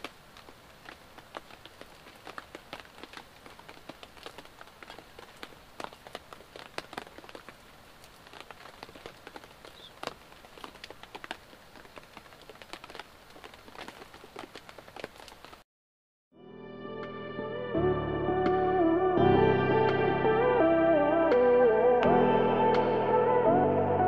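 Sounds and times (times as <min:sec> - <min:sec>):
rain drops on tarp: 0:00.0 - 0:15.6
steady hiss of rain: 0:00.0 - 0:15.6.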